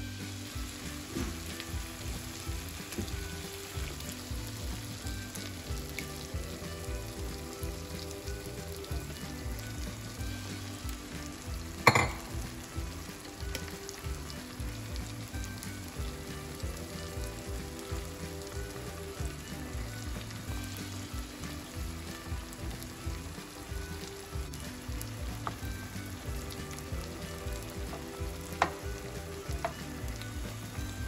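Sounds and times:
food sizzling in a frying pan: 0.0s - 31.0s.

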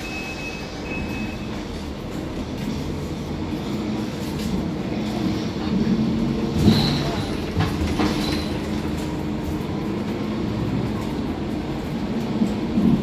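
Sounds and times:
bus engine hum with road noise: 0.0s - 13.0s
knocks and rattles: 6.5s - 9.2s.

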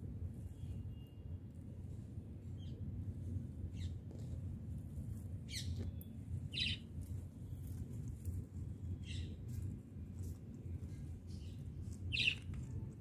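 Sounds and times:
steady low rumble: 0.0s - 13.0s
parakeet chirping: 12.1s - 12.4s.

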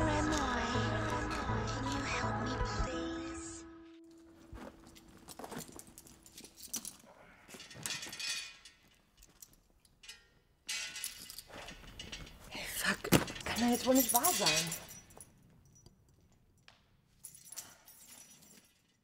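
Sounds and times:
rustling in a bag: 4.1s - 8.2s
small items clinking: 4.1s - 19.0s.

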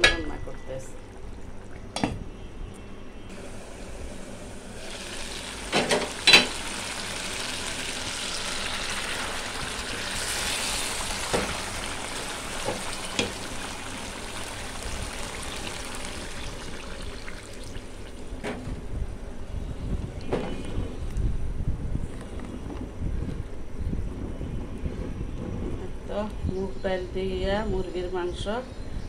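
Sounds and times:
food sizzling in a pot: 3.3s - 18.3s.

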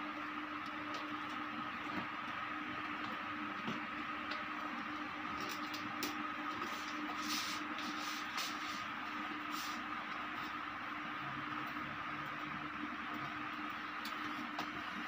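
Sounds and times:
steady low hum: 0.0s - 15.0s
faint plastic scratching and clicks: 3.0s - 8.9s.

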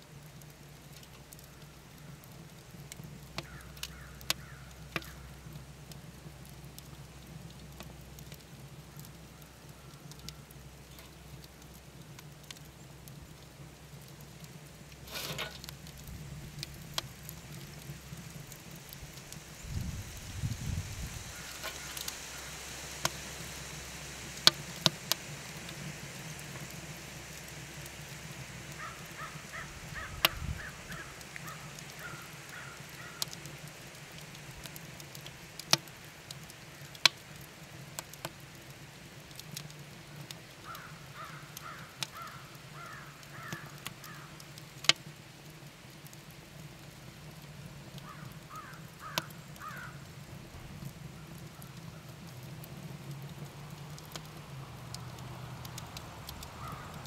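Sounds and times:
wood fire crackling and popping: 0.0s - 57.0s
bird calling: 28.8s - 33.2s.

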